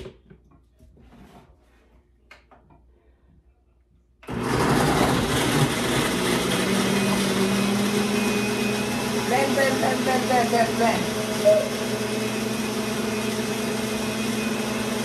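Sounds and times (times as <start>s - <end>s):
blender running: 4.2s - 15.0s.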